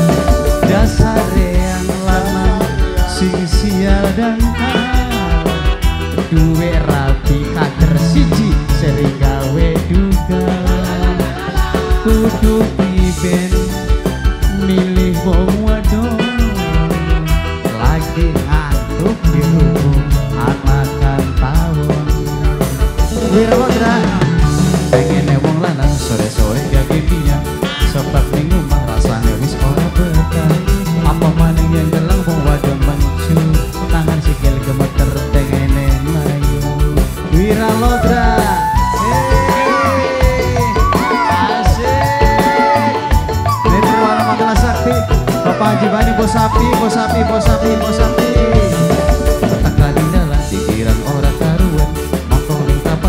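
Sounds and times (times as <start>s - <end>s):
bass line: 0.0s - 53.0s
drum beat: 0.0s - 53.0s
live band music: 0.0s - 53.0s
wavering melody line: 7.5s - 10.0s, 19.0s - 21.2s, 37.6s - 50.6s.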